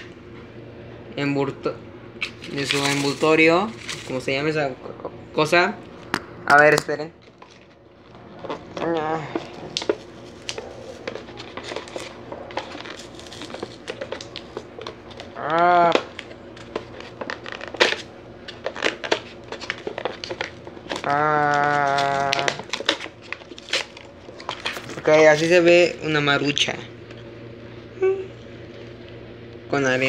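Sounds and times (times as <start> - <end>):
plastic wrapper crinkling and tearing: 2.2 - 4.5, 7.2 - 25.6.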